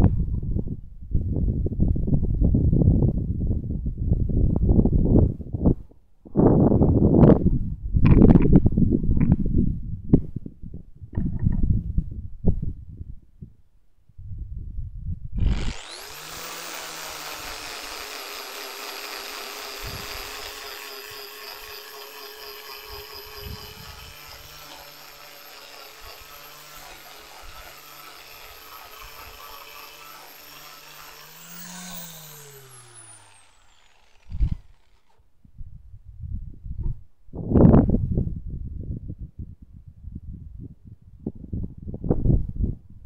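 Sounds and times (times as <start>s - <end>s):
angle grinder sanding wood: 15.4s - 35.2s.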